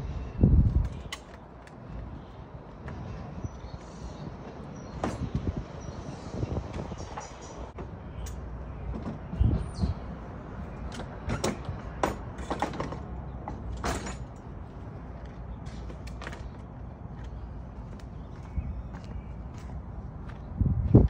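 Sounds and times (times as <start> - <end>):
steady low rumble: 0.0 - 1.1
metal parts knocking and clanking: 10.9 - 14.5.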